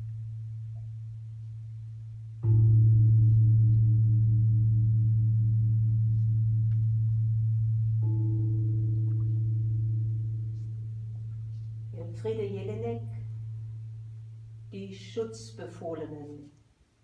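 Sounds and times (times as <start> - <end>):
deep bell-like metal ringing: 2.4 - 12.1, 13.0 - 14.7.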